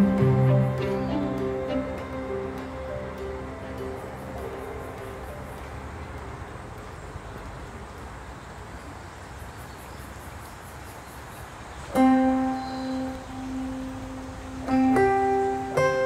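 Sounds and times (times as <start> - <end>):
plucked guitar note: 0.0 - 4.5, 12.0 - 16.0
background music: 0.0 - 6.0
insect chirps: 0.0 - 16.0.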